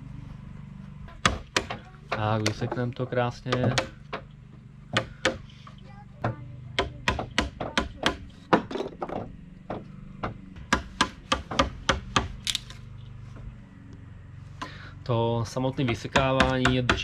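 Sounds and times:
hammer striking a wood chisel: 1.1s - 4.3s, 4.9s - 5.5s, 6.2s - 12.5s, 15.8s - 17.0s.

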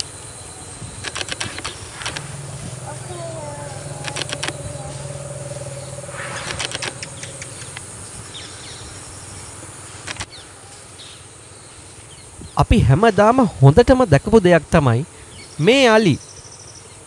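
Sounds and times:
insects buzzing: 0.0s - 12.3s
vehicle engine running: 0.8s - 9.0s
sharp clicks: 1.0s - 2.7s, 3.9s - 7.9s
bird chirps: 1.4s - 9.5s.

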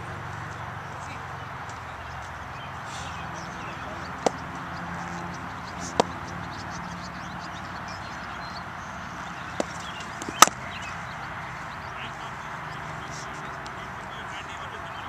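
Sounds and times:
cricket bat striking ball: 4.2s - 4.5s, 5.8s - 6.2s, 9.5s - 10.6s.

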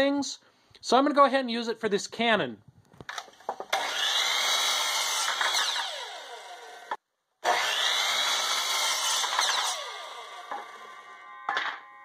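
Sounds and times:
miter saw cutting wood: 3.6s - 11.3s.

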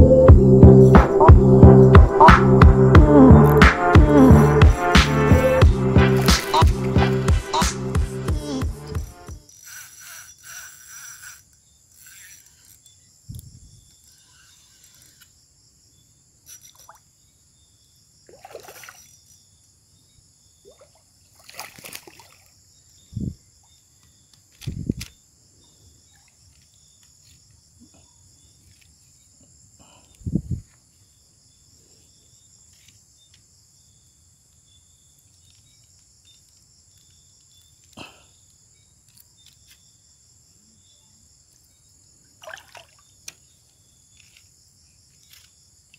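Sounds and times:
low thumps: 0.0s - 9.4s
water sloshing and splashing: 18.3s - 19.1s, 20.7s - 22.6s, 42.4s - 43.1s.

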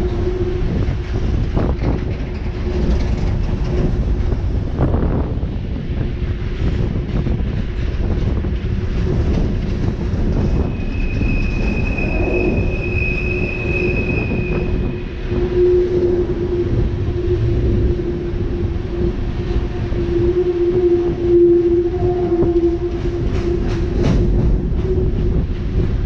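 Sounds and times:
low steady squealing tone: 0.0s - 26.0s
train wheels rumbling on rail: 0.0s - 26.0s
high wheel squeal: 10.4s - 25.2s.

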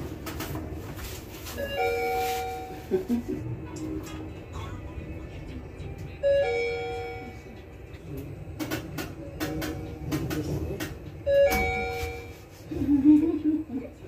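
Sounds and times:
elevator chime ding-dong: 1.6s - 2.8s, 6.2s - 7.7s, 11.2s - 12.5s.

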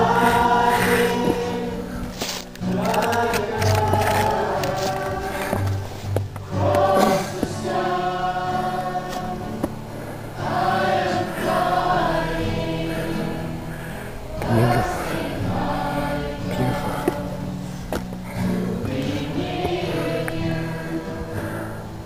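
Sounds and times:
choir singing held notes: 0.0s - 22.0s
steady low drone: 0.0s - 22.0s.

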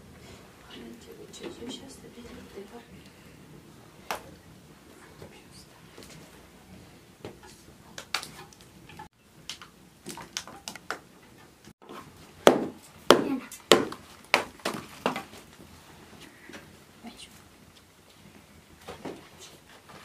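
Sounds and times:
hand tool chopping dung cake: 12.4s - 15.3s.

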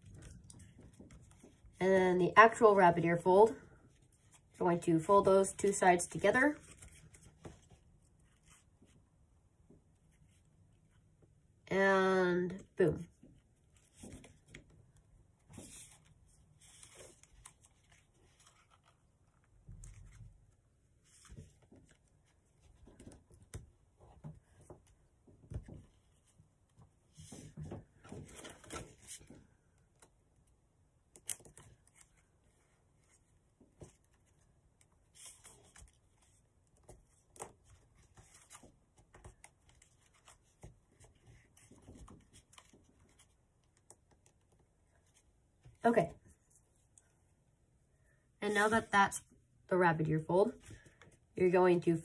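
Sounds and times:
paper rustling and crinkling: 15.4s - 23.6s, 27.1s - 29.5s, 31.3s - 44.4s.

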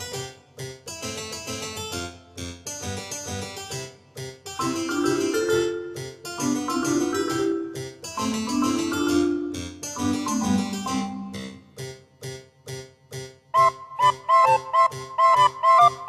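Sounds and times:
keyboard melody of held notes: 4.6s - 11.8s, 13.5s - 16.0s.

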